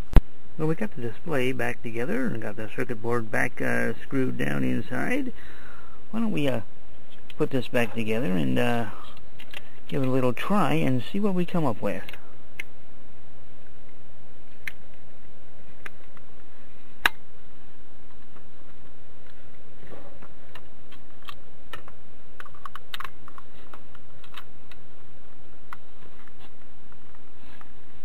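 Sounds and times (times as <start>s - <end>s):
steady background hiss: 0.0s - 28.0s
plastic parts clicking: 20.5s - 24.8s.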